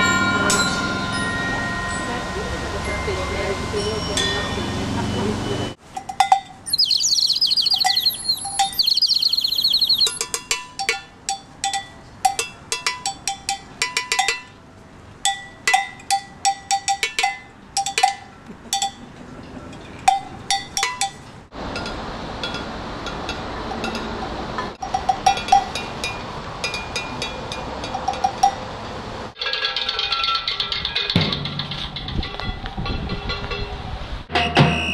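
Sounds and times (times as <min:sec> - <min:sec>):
high warbling call: 0:06.7 - 0:10.2.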